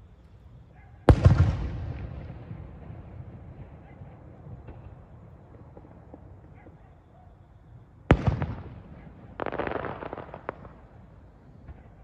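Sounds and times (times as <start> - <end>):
fireworks crackling: 8.1 - 12.0.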